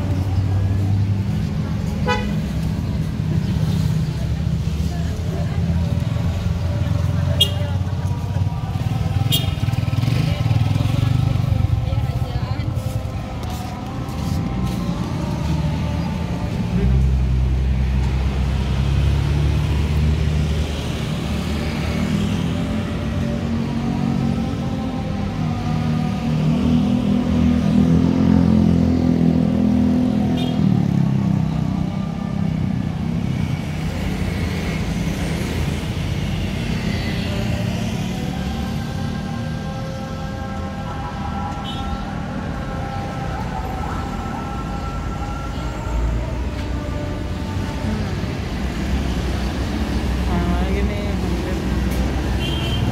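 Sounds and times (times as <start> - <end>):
road noise: 0.0 - 52.9
vehicle engine humming: 0.0 - 52.9.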